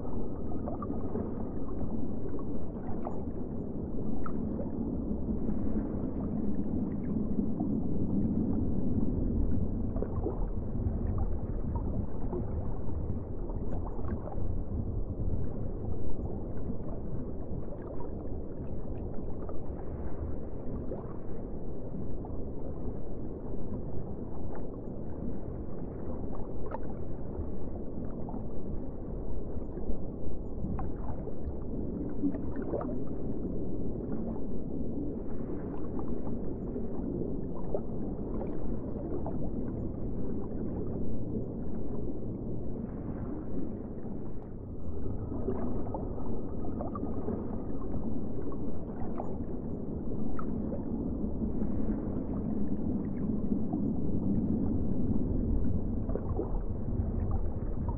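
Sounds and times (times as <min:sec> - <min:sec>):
muffled underwater rumble: 0:00.0 - 0:57.9
gurgles and bubble pops: 0:30.6 - 0:34.5, 0:44.3 - 0:57.9.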